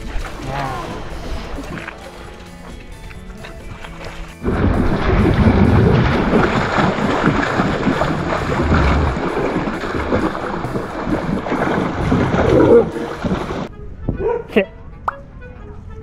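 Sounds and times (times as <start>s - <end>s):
splashing water: 0.0s - 13.7s
wind buffeting microphone: 4.4s - 14.4s.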